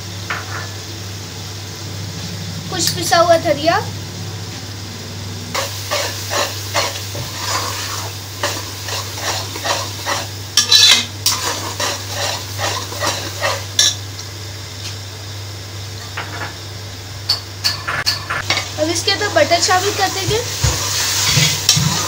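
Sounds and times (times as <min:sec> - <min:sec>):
sizzling in hot oil: 0:05.5 - 0:22.0
metal spatula scraping pot: 0:05.6 - 0:14.0.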